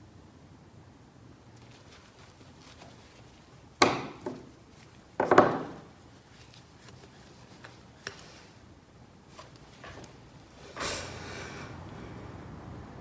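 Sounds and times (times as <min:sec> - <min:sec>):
sharp knocks on hard surface: 0:03.8 - 0:04.5, 0:05.2 - 0:05.9.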